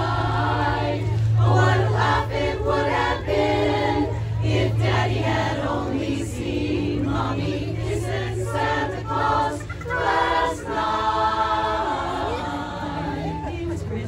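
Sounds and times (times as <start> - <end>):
women's chorus singing: 0.0 - 14.0.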